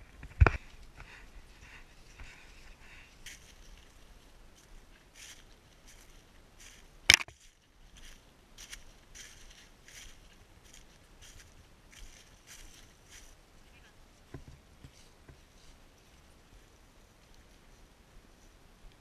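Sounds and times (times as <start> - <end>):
footsteps in dry leaves: 1.5 - 13.7.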